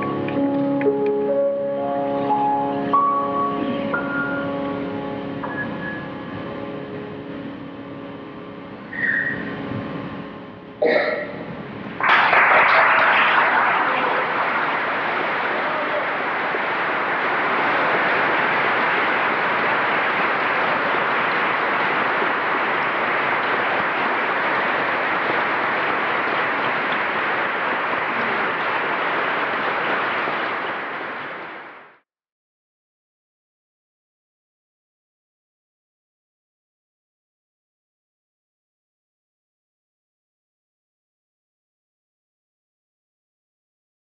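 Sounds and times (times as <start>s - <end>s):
grand piano notes: 0.0s - 12.0s
audience applause: 12.0s - 32.0s.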